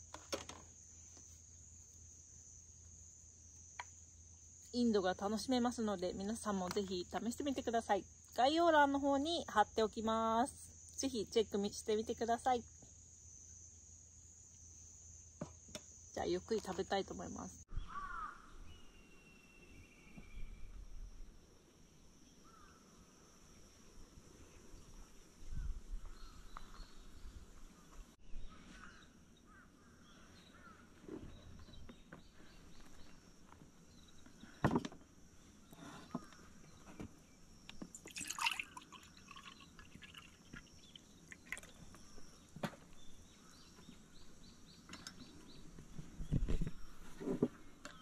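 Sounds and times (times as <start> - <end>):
high insect drone: 0.0 - 27.9, 28.8 - 45.6
faint bird chirps: 17.6 - 21.1, 24.4 - 33.2
liquid poured into mug: 37.9 - 41.8.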